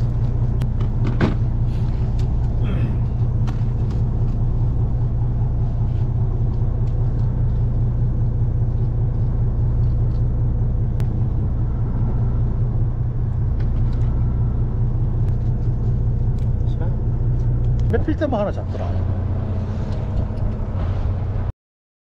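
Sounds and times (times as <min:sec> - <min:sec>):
boat engine droning: 0:00.0 - 0:21.5.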